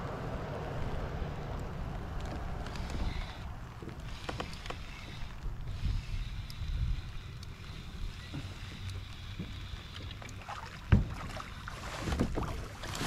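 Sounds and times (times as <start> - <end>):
wind rumbling on microphone: 0.0 - 10.0
small clicks and splashes: 1.5 - 13.0.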